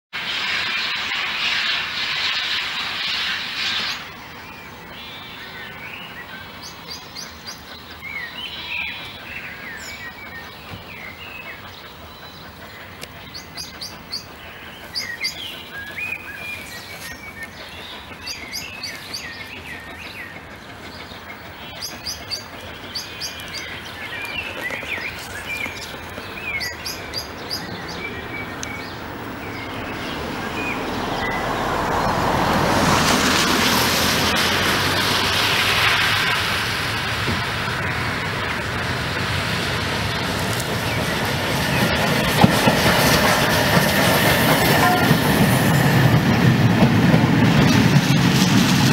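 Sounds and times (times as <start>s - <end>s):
approaching train rumble: 0.1s - 48.9s
steam locomotive hiss: 0.2s - 48.9s
songbirds chirping and singing: 4.6s - 32.2s.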